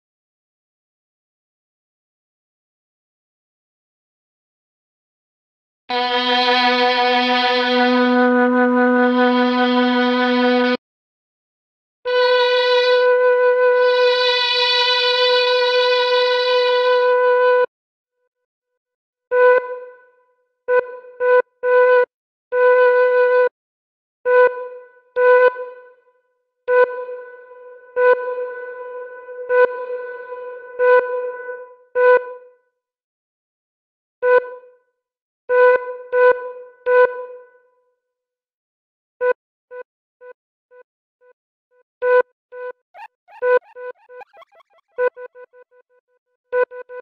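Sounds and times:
flute sample note with reverb: 43.0 - 44.6.

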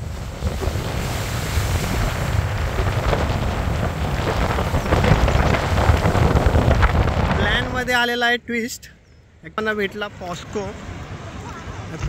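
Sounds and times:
wind buffeting microphone: 0.0 - 8.4.

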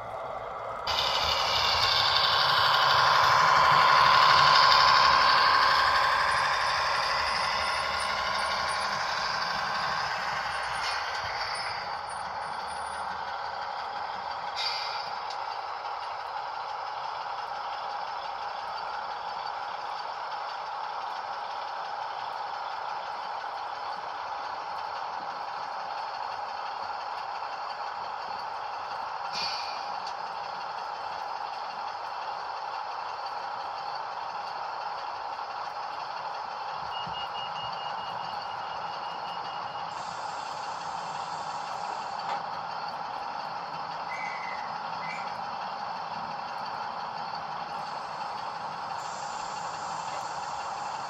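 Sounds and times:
model diesel engine sound: 0.0 - 51.0
brief hisses: 29.3 - 29.9.

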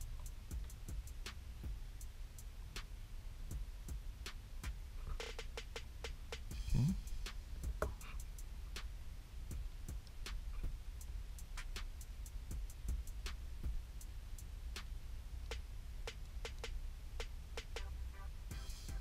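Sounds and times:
low steady hum: 6.0 - 19.0.

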